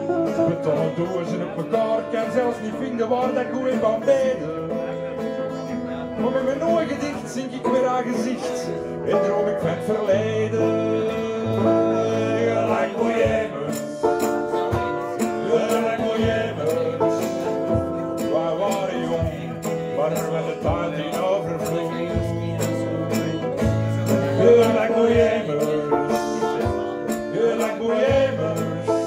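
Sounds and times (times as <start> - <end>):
strummed acoustic guitars: 0.0 - 29.0
steady drum beat: 13.1 - 29.0.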